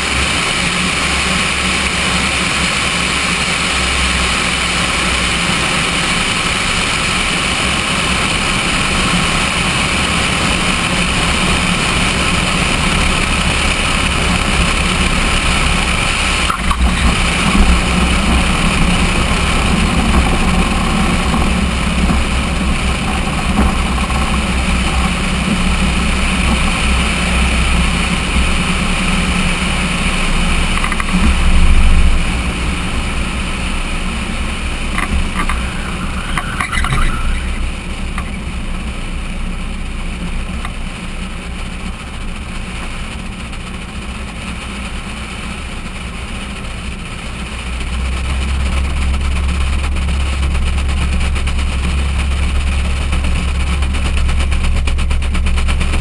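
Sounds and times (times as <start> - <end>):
propeller engine running: 0.0 - 56.0
heavy wind rush: 6.4 - 40.6.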